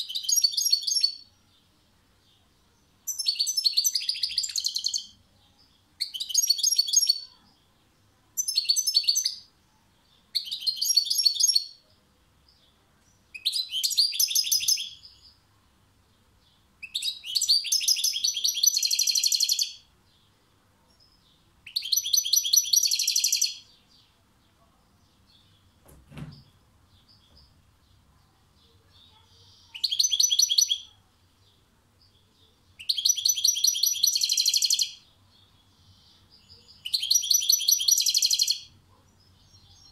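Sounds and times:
goldfinch twittering song: 16.5 - 19.8, 21.0 - 24.1, 29.0 - 31.0, 32.8 - 39.9
soft low thump: 25.8 - 26.6.

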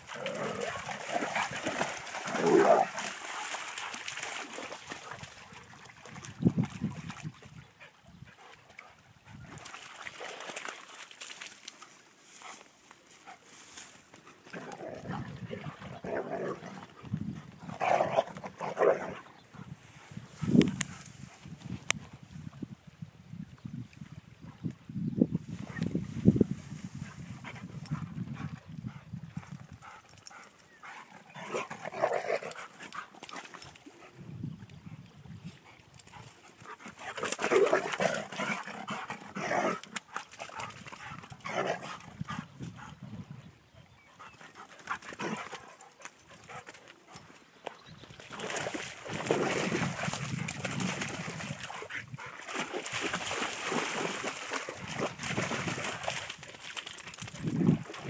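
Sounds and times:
water splashing: 0.0 - 7.3, 9.6 - 11.9, 48.2 - 57.1.

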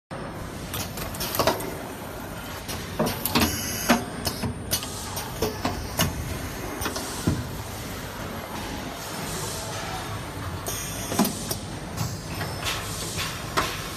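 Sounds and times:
pneumatic clamps clacking and knocking: 10.6 - 13.9.

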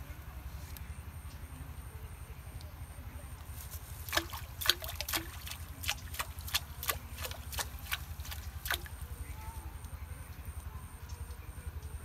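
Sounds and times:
fish splashing at water surface: 3.6 - 9.1.

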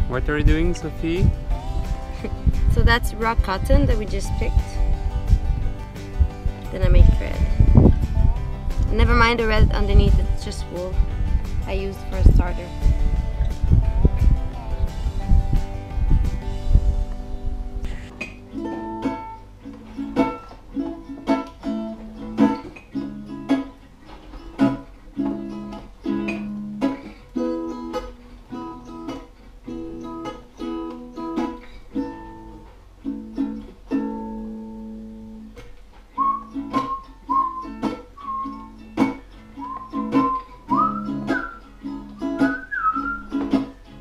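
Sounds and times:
acoustic guitar plucking: 0.0 - 44.0
whistled melody: 36.2 - 44.0.

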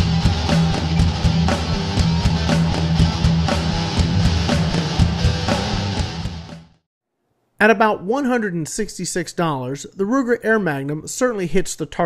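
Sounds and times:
steady drum beat: 0.0 - 6.7
rock music with guitar: 0.0 - 6.8.

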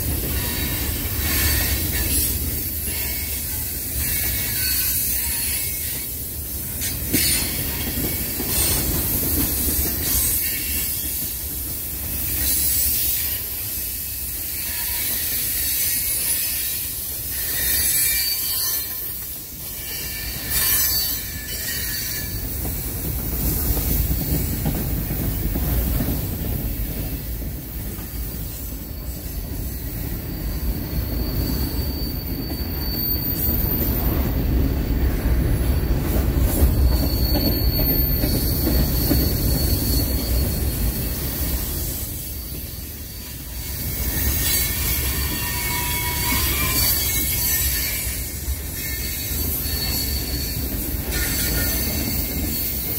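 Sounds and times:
train wheels rumbling on rails: 0.0 - 52.9
high wheel squeal: 12.1 - 25.6, 26.7 - 34.7, 35.3 - 52.9.

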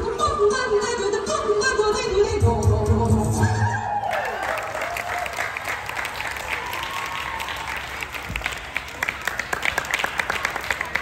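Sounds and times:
children applauding: 3.9 - 11.0.

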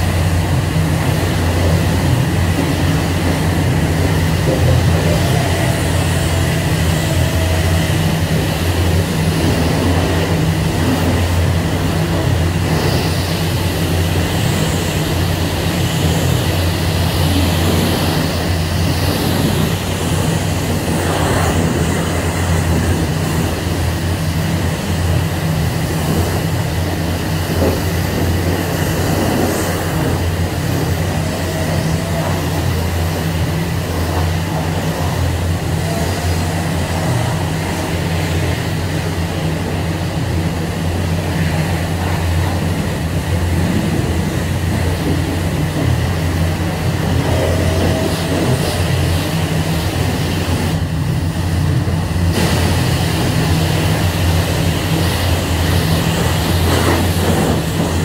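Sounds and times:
high-pressure water spraying: 0.0 - 58.0
low mechanical hum: 0.0 - 58.0.

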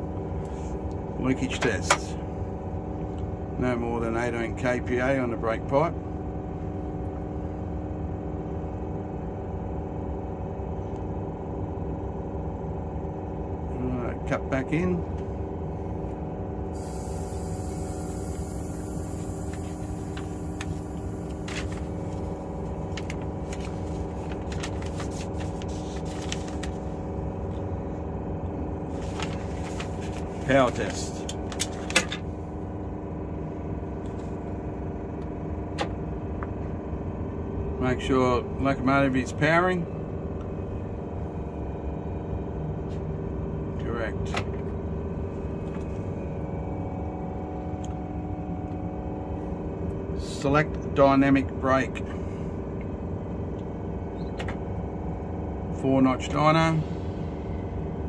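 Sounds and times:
diesel engine idling: 12.1 - 42.6.

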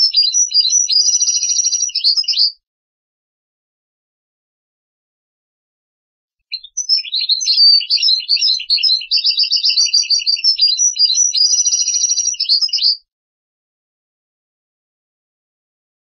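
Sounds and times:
finch twittering song: 0.0 - 2.6, 6.5 - 13.0.

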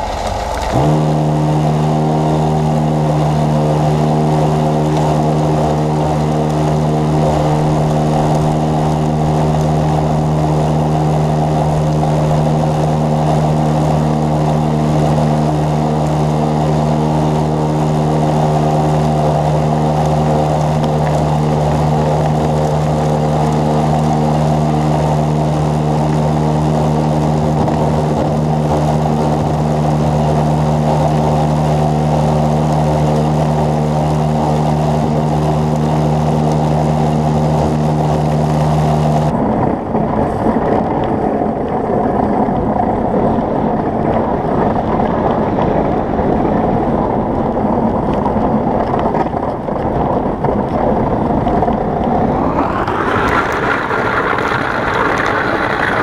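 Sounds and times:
motor running steadily: 0.0 - 39.4, 51.8 - 56.0.

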